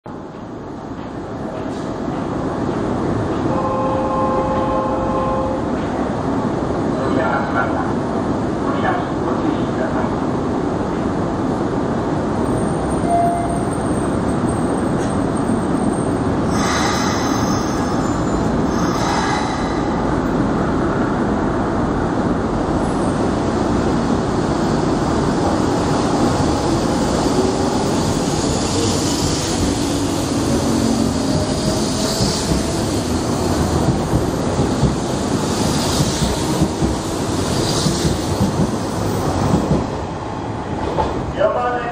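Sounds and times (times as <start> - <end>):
air hissing: 16.4 - 20.5, 35.3 - 36.7
electric train whine: 24.7 - 40.5.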